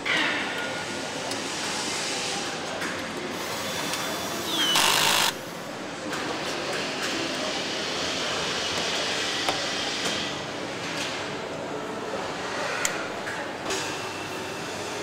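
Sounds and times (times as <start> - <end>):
machine and tool noise: 0.0 - 15.0.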